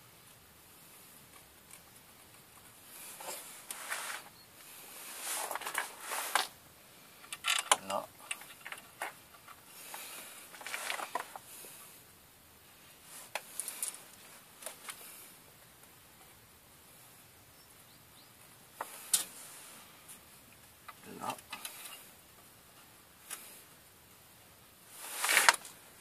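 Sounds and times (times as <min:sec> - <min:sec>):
metal bolts scraping and clicking: 0:07.3 - 0:09.6.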